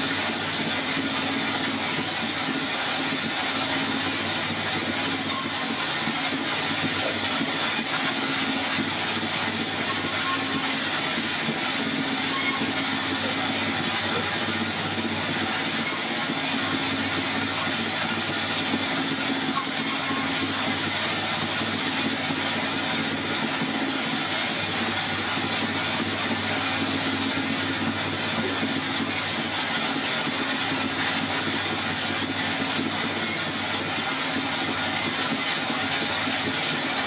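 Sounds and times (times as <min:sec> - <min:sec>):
band saw humming: 0:00.0 - 0:36.1
high hiss of sawing: 0:05.1 - 0:06.6, 0:09.8 - 0:11.0.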